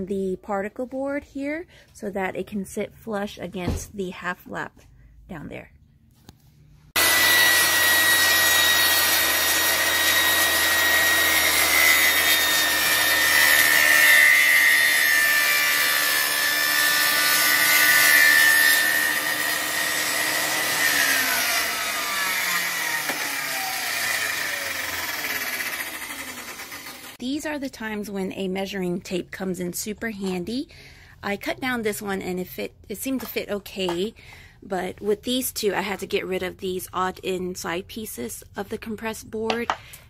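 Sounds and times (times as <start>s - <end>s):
table saw cutting board: 7.0s - 27.2s.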